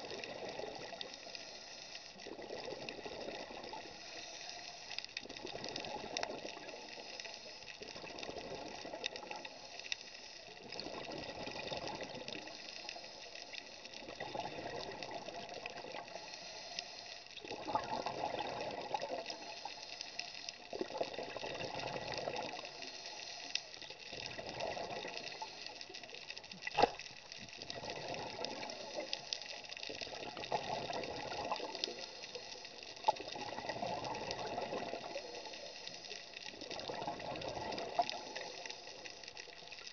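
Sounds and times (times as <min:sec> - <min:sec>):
steady hiss: 0:00.0 - 0:39.9
underwater exhaust bubbles rushing: 0:13.9 - 0:16.2, 0:17.4 - 0:19.5, 0:20.7 - 0:22.7, 0:26.7 - 0:29.2, 0:29.9 - 0:32.4, 0:33.0 - 0:35.6, 0:36.5 - 0:39.1.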